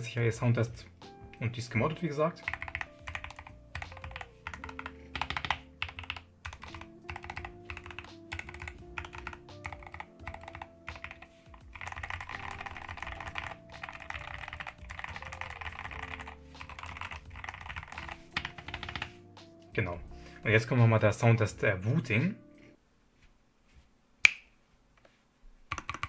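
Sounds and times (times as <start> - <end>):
keyboard typing: 2.4 - 19.2, 25.7 - 26.0.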